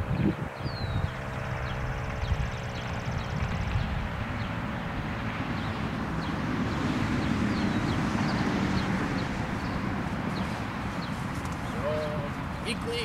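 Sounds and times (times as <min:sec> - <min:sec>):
wind rumble on microphone: 0:00.0 - 0:13.0
bird chirps: 0:00.2 - 0:04.6.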